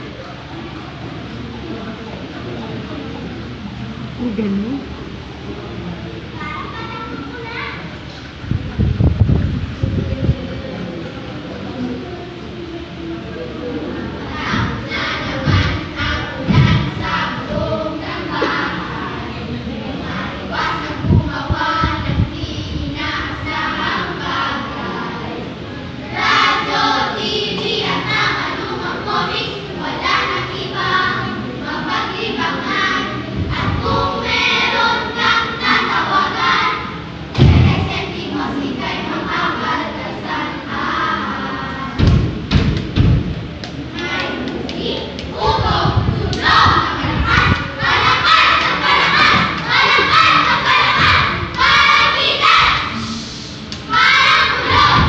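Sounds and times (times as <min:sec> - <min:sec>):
children chanting in unison: 0:14.3 - 0:25.4, 0:26.0 - 0:42.2, 0:44.0 - 0:55.0
low thud: 0:16.4 - 0:17.0, 0:37.3 - 0:37.9, 0:42.0 - 0:43.4, 0:54.6 - 0:55.0.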